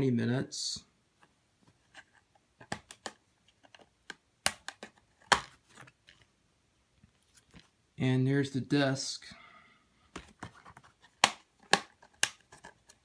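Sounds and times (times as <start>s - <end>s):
plastic case snapping: 2.6s - 5.9s, 11.2s - 13.0s
plastic case taps and clicks: 11.2s - 12.4s.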